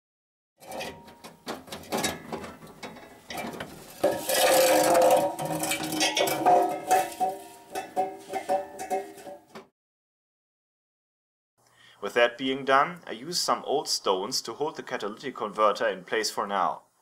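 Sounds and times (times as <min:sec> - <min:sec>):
metal exhaust scraping on floor: 0:00.6 - 0:09.5.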